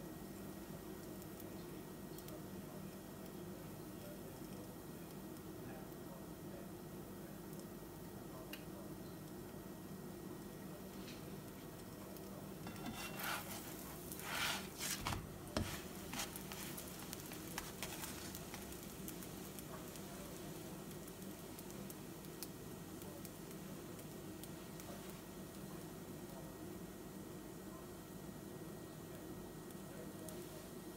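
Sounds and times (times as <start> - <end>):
bread sizzling in a pan: 0.0 - 30.9
spatula scraping a pan: 12.6 - 18.7
bread flipped with soft slap: 12.9 - 18.7.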